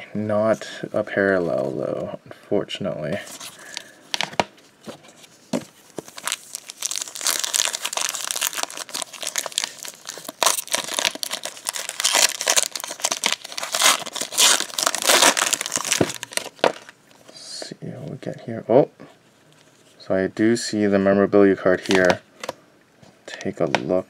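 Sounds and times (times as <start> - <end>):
foil wrapper crinkling and tearing: 6.1 - 17.0.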